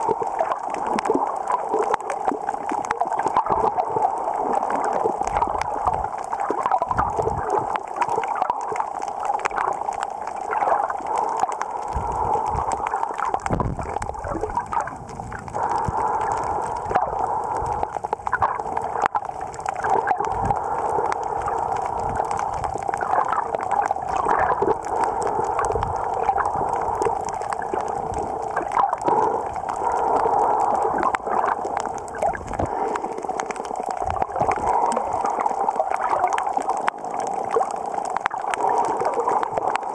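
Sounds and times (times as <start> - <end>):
faint underwater clicks: 0.0 - 39.9
underwater gurgling wash: 0.0 - 39.9.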